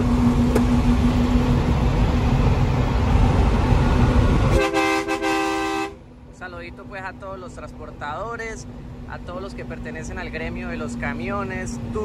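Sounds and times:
constant hum: 0:00.0 - 0:12.0
truck engine and road rumble: 0:00.0 - 0:12.0
truck horn: 0:04.5 - 0:06.1.

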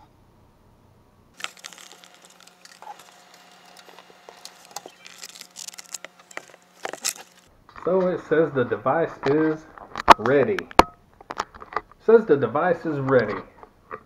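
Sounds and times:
faint steady hum: 0:00.0 - 0:14.0
webcam handling clicks and rubbing: 0:01.4 - 0:07.5.

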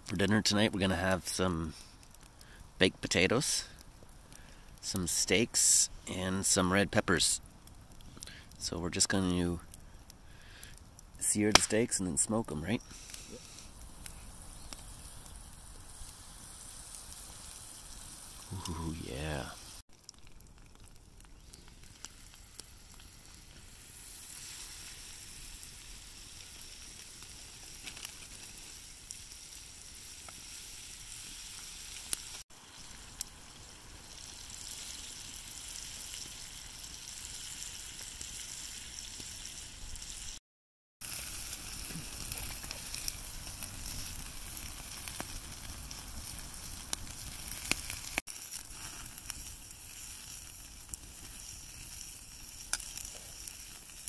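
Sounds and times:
steaks sizzling in a pan: 0:21.9 - 0:40.3, 0:41.0 - 0:54.0.

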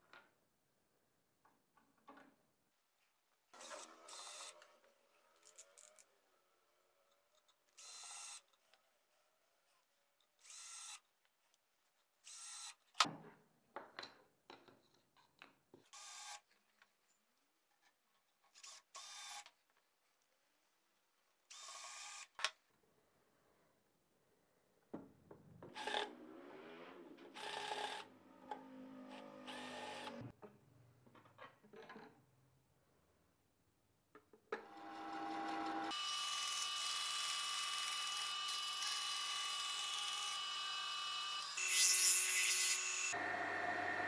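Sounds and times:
cordless drill driving screws: 0:03.6 - 0:04.6.

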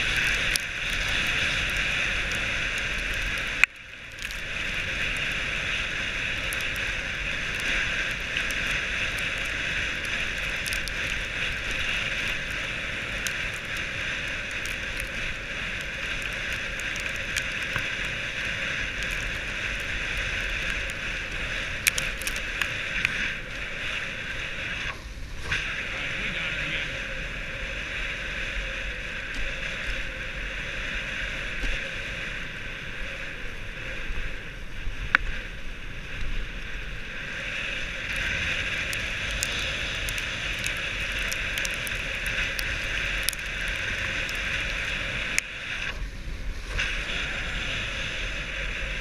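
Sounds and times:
light clicks and ticks: 0:00.0 - 0:23.2, 0:38.1 - 0:46.0.

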